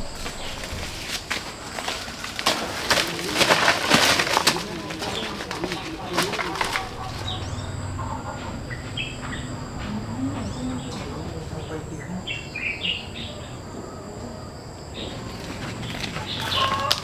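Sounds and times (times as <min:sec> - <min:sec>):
rustling bursts: 0:00.0 - 0:10.4.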